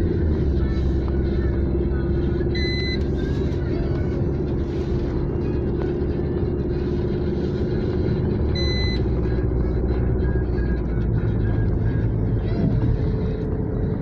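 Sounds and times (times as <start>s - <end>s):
car engine and tyre rumble: 0.0s - 14.0s
constant low hum: 0.0s - 14.0s
short high electronic beep: 2.6s - 3.0s, 8.6s - 9.1s.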